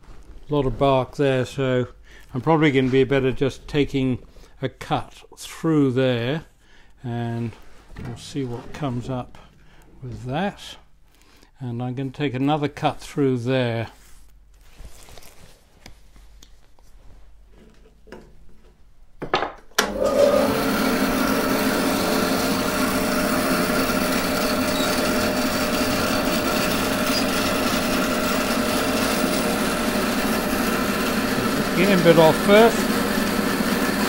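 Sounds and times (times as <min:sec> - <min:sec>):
bandsaw cutting wood: 0:19.8 - 0:34.0.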